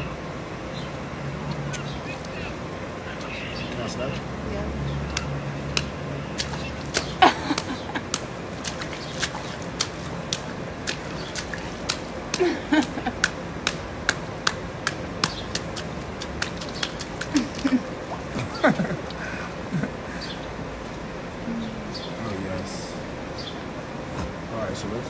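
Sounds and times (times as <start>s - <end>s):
hand slapping water and wet skin: 5.1s - 19.2s.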